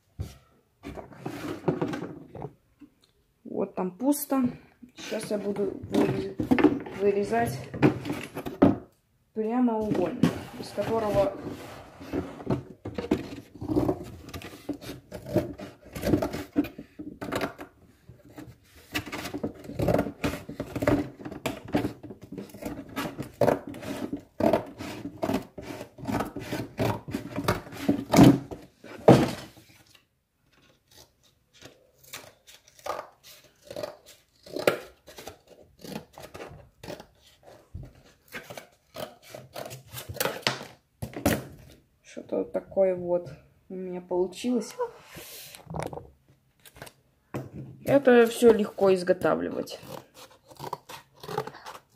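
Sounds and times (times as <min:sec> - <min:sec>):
scissors cutting cardboard: 0:12.9 - 0:28.4, 0:30.6 - 0:40.8, 0:49.6 - 0:51.9.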